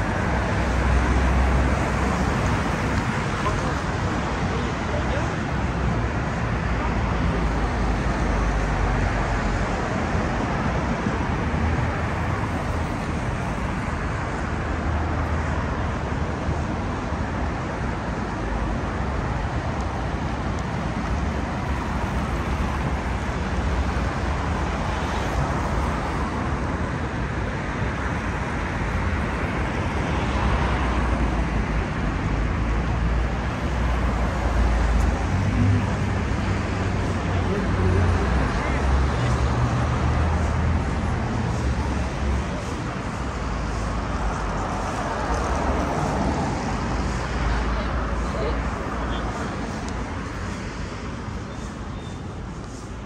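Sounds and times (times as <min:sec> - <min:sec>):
cars driving past: 0:00.0 - 0:53.0.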